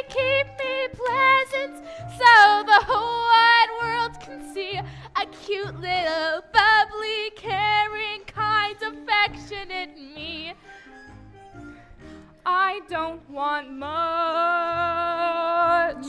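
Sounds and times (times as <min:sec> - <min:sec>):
instrumental accompaniment with bass: 0:07.4 - 0:13.1
women singing with vibrato: 0:12.5 - 0:16.0.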